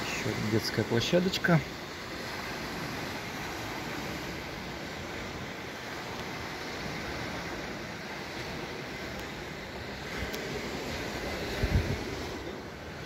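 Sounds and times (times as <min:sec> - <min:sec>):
sea surf: 0:00.0 - 0:13.0
wind: 0:00.0 - 0:13.0.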